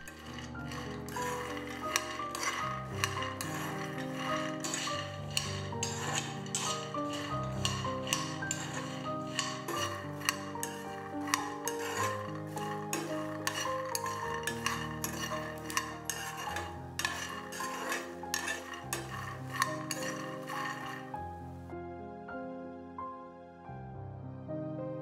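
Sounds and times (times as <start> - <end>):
nuts rattling in a pan: 0.0 - 21.2
spoon scraping metal frying pan: 0.0 - 21.5
soft keyboard music: 21.0 - 25.0.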